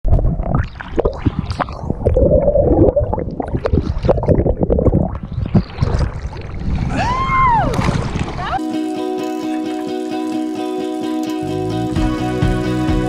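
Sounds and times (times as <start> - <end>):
sea water sloshing and gurgling: 0.0 - 8.6
person whooping: 6.9 - 7.8.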